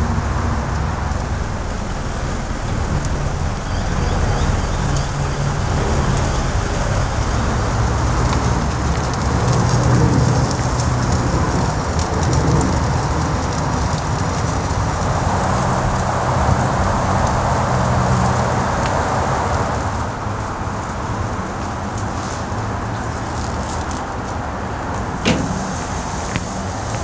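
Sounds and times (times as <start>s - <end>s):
coals crackling and popping: 0.0s - 27.0s
steak sizzling on grill: 25.1s - 27.0s.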